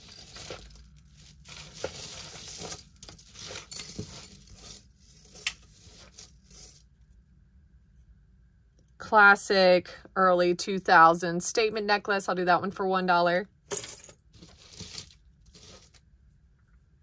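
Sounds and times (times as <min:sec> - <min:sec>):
jewelry rustling and clinking: 0:00.0 - 0:07.3, 0:13.6 - 0:16.0.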